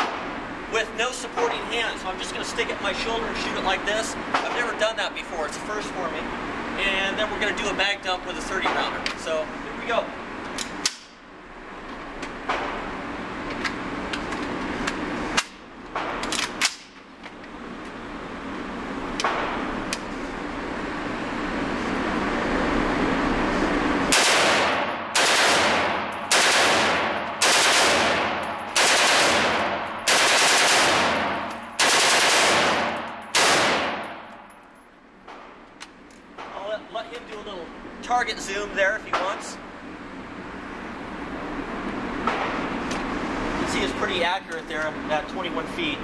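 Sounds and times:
rifle firing automatic bursts: 24.1 - 34.0
sharp gunshot cracks: 24.1 - 34.2.

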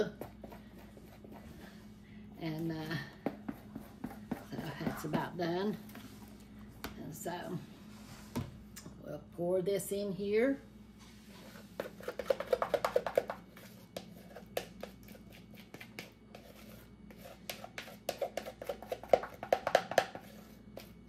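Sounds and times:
spatula scraping plastic bowl: 3.2 - 6.1, 11.3 - 21.0.

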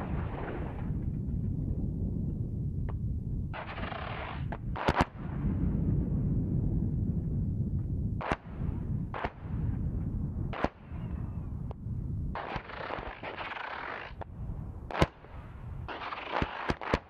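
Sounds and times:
steady low rumble: 0.0 - 13.2, 14.1 - 15.9
sharp explosion cracks: 3.6 - 5.7.

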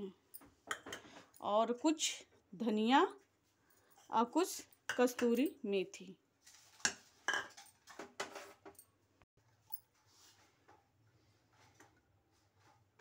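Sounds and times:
dishes clinking: 6.8 - 8.6.

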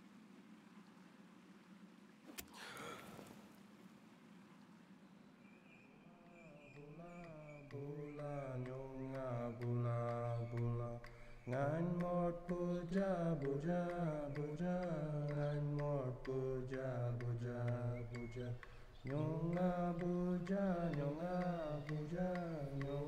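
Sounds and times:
voice chanting wavering melody: 6.1 - 23.0.

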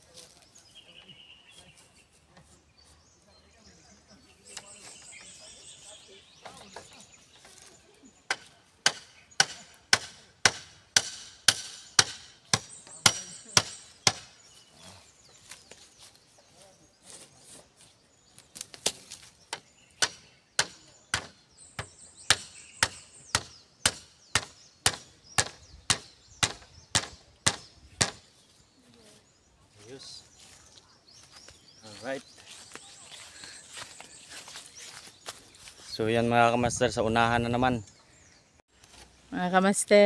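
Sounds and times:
tool striking bamboo: 8.3 - 14.3, 18.8 - 28.2.

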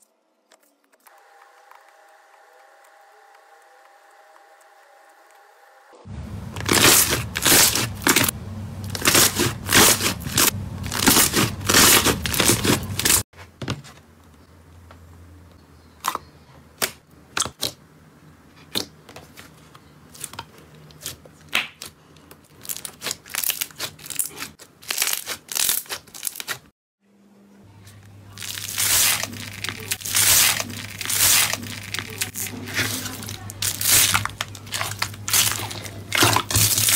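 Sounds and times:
crunching of slime with foam beads: 6.6 - 13.2, 28.3 - 36.9.

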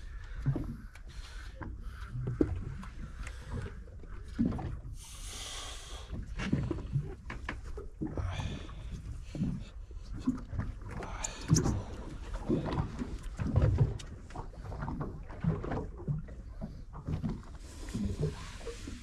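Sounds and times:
water lapping against boat hull: 0.0 - 19.0.

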